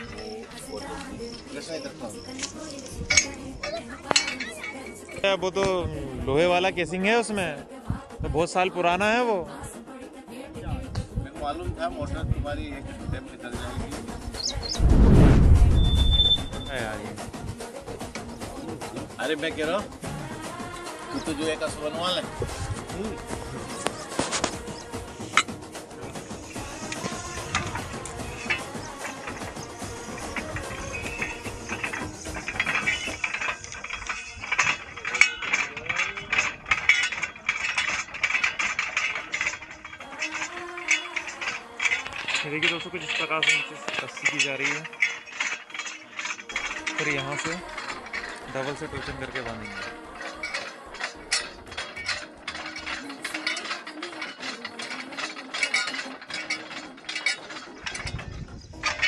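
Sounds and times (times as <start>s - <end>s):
ratcheting clicks of rope rig: 0.0s - 5.3s, 22.4s - 59.0s.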